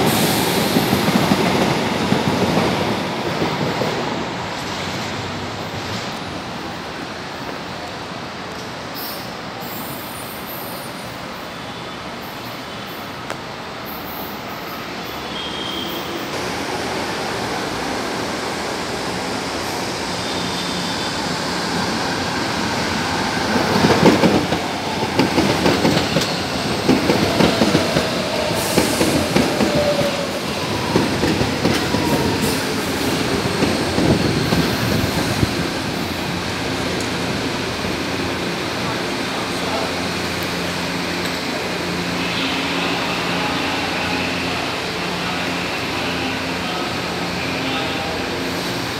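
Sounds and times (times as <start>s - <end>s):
train rumble: 16.0s - 48.9s.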